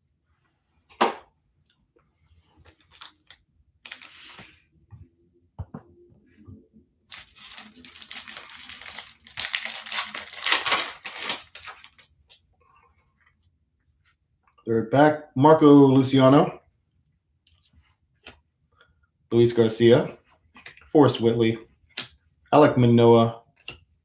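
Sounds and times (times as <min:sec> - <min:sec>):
foil wrapper tearing and crinkling: 0:02.8 - 0:04.3, 0:07.1 - 0:12.1.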